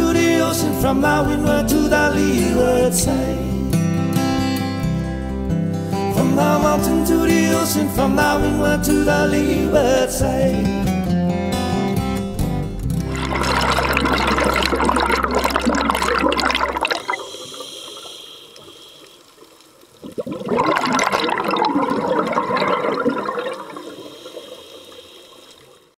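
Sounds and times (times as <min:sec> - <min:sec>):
bubbles gurgling underwater: 0:12.3 - 0:17.8, 0:19.9 - 0:25.9.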